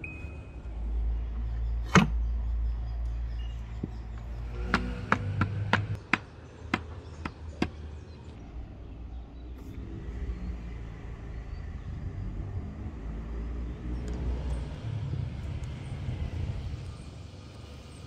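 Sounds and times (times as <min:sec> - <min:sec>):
axe handle knocking on wood: 0:04.7 - 0:07.8.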